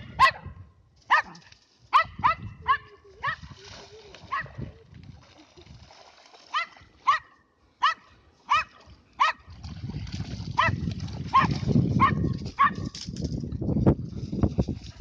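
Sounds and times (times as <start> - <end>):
dog barking: 0.1 - 0.5, 1.1 - 3.4, 6.5 - 9.5, 10.6 - 12.9.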